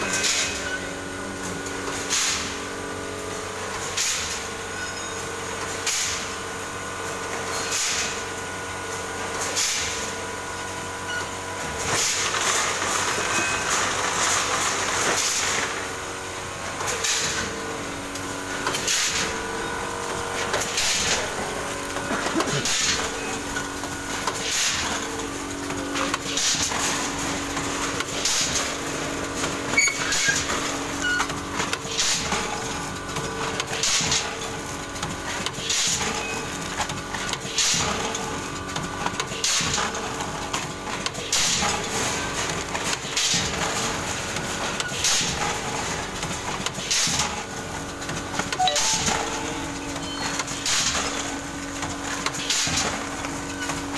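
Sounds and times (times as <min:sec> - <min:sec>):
machine hum: 0:13.9 - 0:29.8, 0:48.2 - 0:52.3
packing machine sealing strokes: 0:20.0 - 0:25.0.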